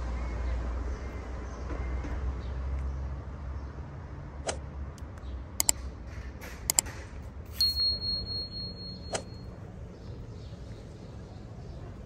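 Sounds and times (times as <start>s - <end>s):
high bell ding: 7.5s - 9.5s.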